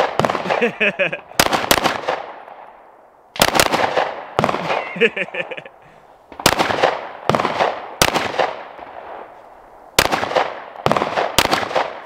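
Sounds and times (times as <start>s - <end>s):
pistol shots with echo: 0.0s - 2.7s, 3.4s - 5.1s, 6.3s - 9.3s, 10.0s - 12.0s.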